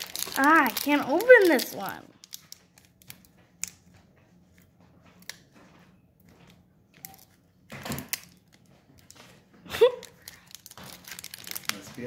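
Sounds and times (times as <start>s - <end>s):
foil wrapper crinkling: 0.0s - 3.8s, 9.9s - 12.0s.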